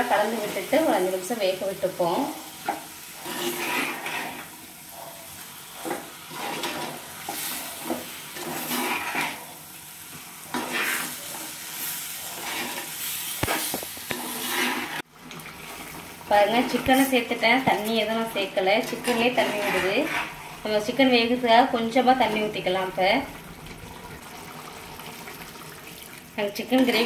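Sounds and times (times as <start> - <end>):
chicken and masala frying: 0.0 - 27.0
spatula scraping a clay pot: 3.2 - 4.5, 5.8 - 9.4, 10.5 - 11.4, 12.2 - 15.1, 19.0 - 20.5.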